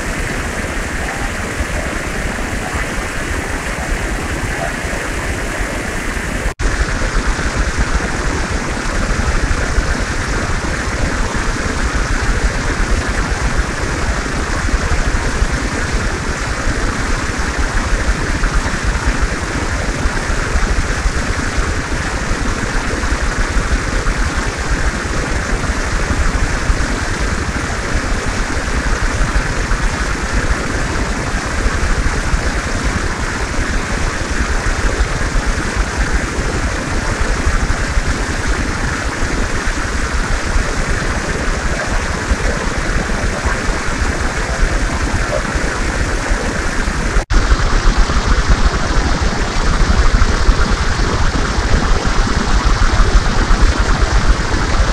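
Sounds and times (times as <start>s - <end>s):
fountain water splashing into pool: 0.0s - 54.9s.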